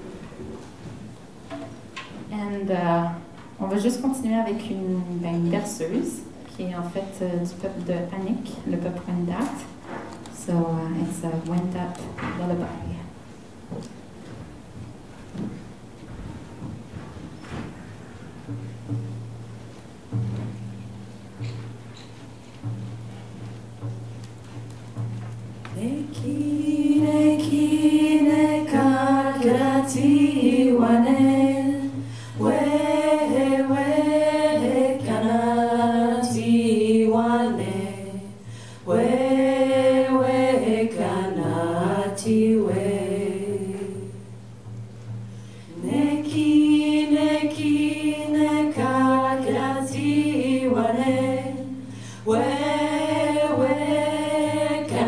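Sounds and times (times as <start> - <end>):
women singing unaccompanied: 25.7 - 44.5, 45.7 - 55.0.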